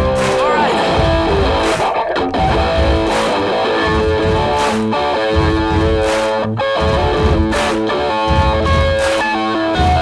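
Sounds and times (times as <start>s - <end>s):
guitar song over steady beat: 0.0s - 10.0s.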